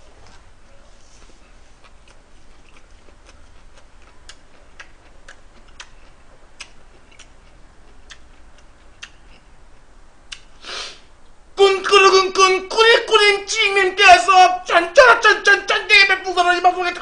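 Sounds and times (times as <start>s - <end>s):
person chewing with wet mouth smacks: 1.1s - 9.5s, 10.3s - 10.5s.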